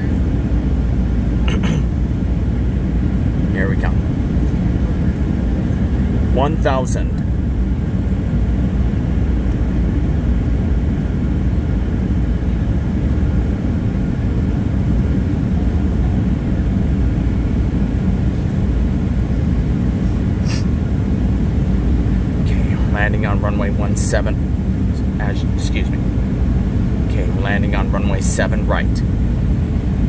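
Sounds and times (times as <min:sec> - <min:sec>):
airliner cabin drone: 0:00.0 - 0:30.0.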